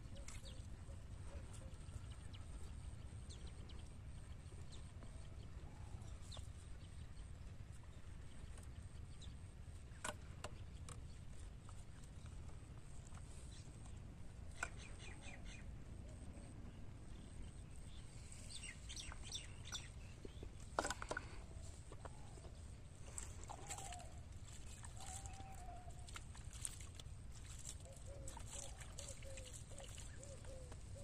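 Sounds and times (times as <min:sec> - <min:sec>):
bird chirps: 0:23.2 - 0:26.8, 0:27.6 - 0:31.0.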